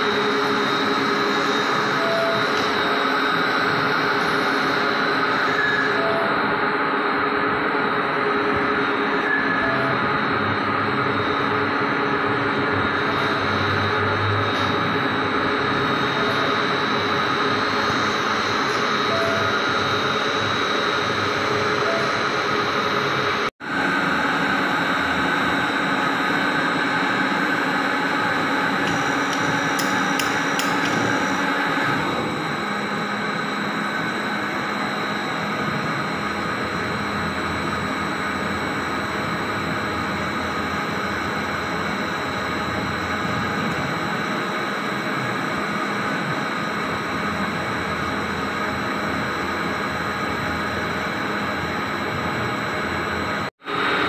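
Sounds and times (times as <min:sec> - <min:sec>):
lathe hum and whine: 0:00.0 - 0:54.0
metal cutting noise: 0:23.9 - 0:34.1.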